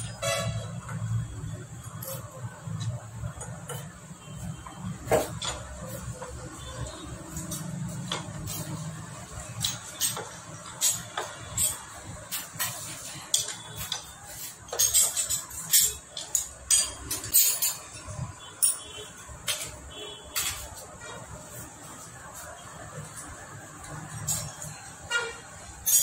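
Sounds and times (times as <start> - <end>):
hand tool clinking on metal: 9.3 - 19.8, 25.8 - 26.0.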